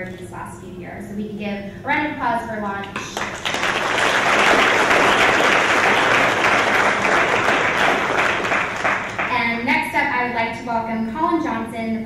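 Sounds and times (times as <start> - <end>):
audience applauding: 3.0 - 9.4.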